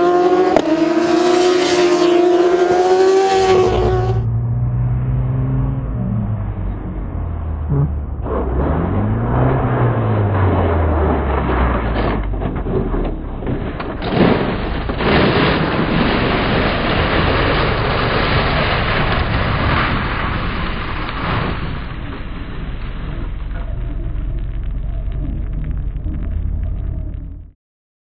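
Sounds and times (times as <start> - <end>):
motorcycle engine: 0.0 - 13.4.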